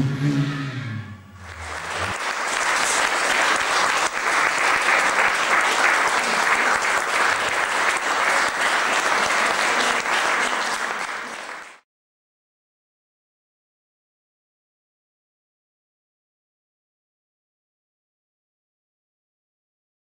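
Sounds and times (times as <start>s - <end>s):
audience applauding: 1.4s - 11.8s.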